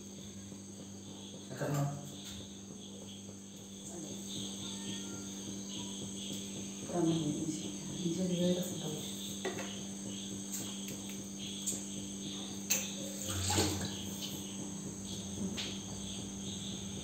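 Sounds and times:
crickets chirring: 0.0 - 17.0
low steady hum: 0.0 - 17.0.

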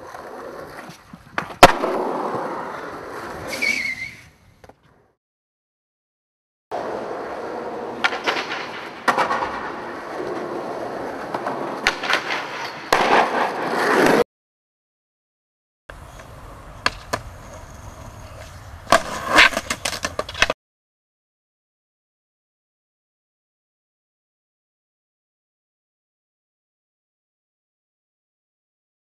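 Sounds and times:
skateboard wheels rolling on concrete: 0.0 - 5.2, 6.7 - 14.2, 15.9 - 20.6
skateboard clacking: 6.8 - 14.2, 15.9 - 20.6.

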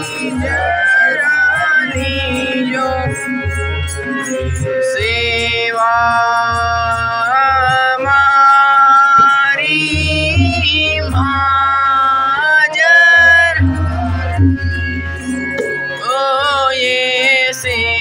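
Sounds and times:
person singing devotional hymn: 0.0 - 3.5, 5.0 - 14.2
low musical accompaniment: 0.0 - 18.0.

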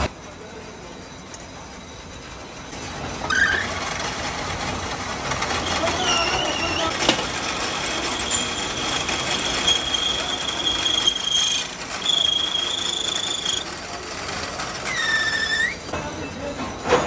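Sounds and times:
lathe running: 1.5 - 16.0
cutting tool squealing: 3.3 - 3.8, 5.6 - 13.7, 14.8 - 15.9.

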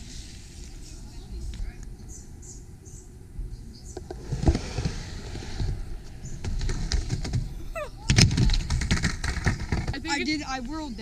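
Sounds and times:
skateboard wheels rumbling on wood: 4.0 - 10.4.

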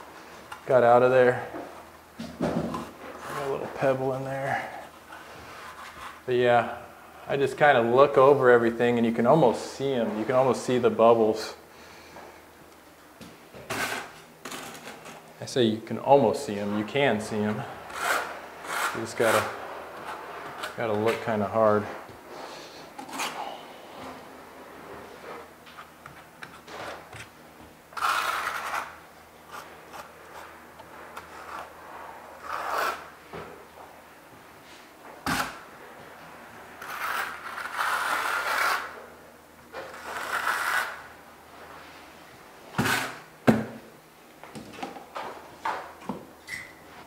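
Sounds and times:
trowel scraping over membrane: 28.0 - 30.5, 32.4 - 33.1, 36.8 - 39.0, 39.8 - 41.0, 42.8 - 43.2.

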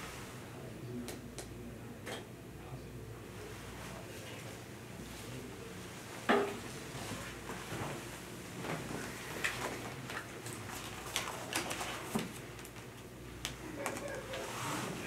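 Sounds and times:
paper folder rustling: 9.4 - 12.9.

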